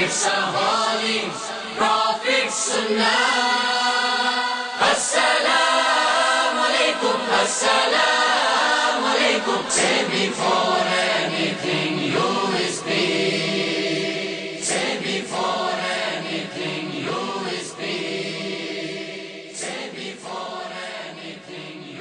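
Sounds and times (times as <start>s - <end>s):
choir singing slow chant: 0.0s - 22.0s.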